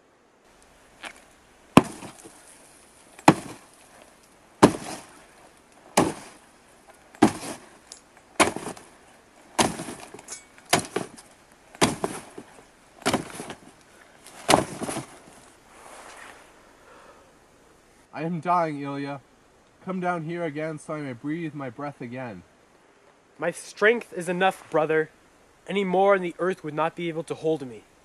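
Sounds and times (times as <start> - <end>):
sword striking coffin lid: 3.2 - 3.6, 4.6 - 5.0, 6.0 - 6.3, 7.2 - 7.6, 8.4 - 8.8, 9.6 - 11.2, 11.8 - 12.3.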